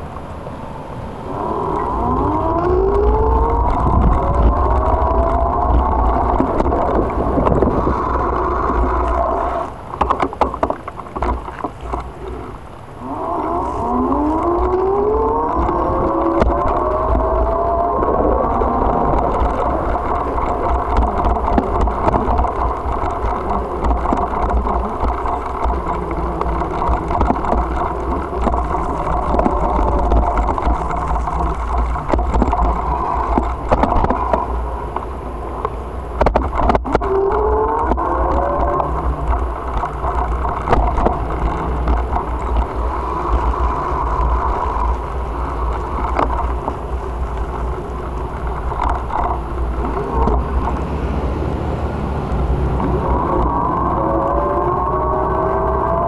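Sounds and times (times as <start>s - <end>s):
bicycle tyre noise: 1.0s - 56.0s
wind buffeting microphone: 1.0s - 56.0s
car passing: 49.4s - 56.0s.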